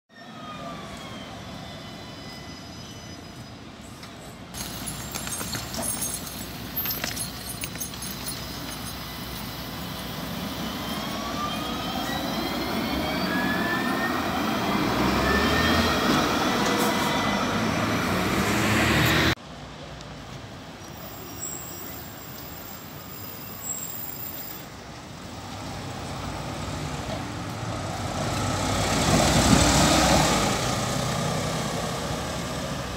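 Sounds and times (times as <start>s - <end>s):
tram motors whining: 0.1s - 19.4s
bus passing by: 0.2s - 32.9s.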